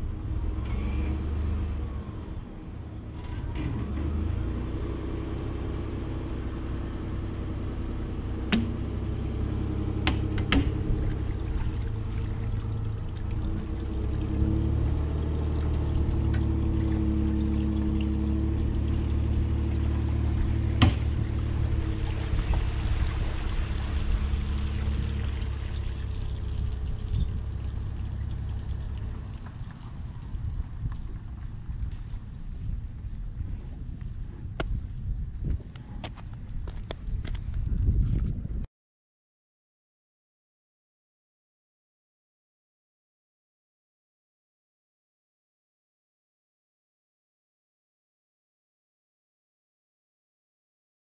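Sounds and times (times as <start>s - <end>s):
pickup truck engine running: 6.6s - 34.4s
sharp knocks: 8.5s - 8.8s, 10.0s - 10.8s, 20.8s - 21.2s
water pouring off hull: 8.6s - 32.4s.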